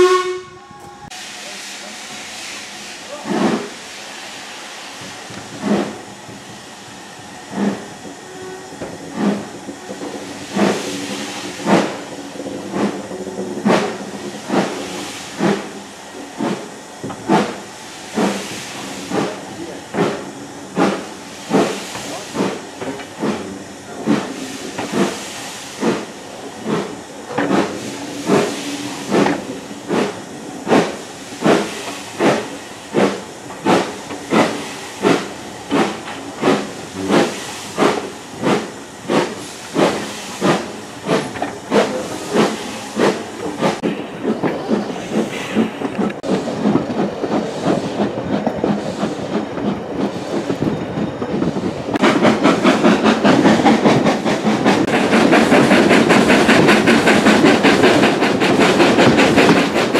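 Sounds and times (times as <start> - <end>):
steady steam hiss: 0.0 - 59.9
steam locomotive exhaust beats: 0.0 - 59.9.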